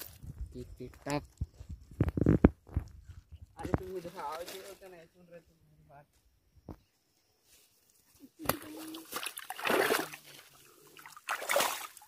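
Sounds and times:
water splashing and sloshing: 0:08.4 - 0:12.0.

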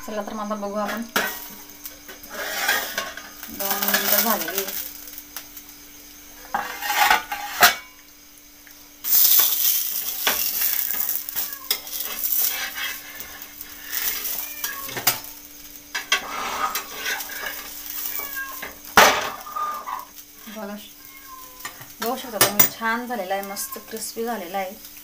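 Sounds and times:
flatbread sizzling in oil: 0:00.8 - 0:25.0
metal spatula scraping pan: 0:02.1 - 0:04.5, 0:06.5 - 0:07.9, 0:09.4 - 0:14.3, 0:16.0 - 0:20.1.

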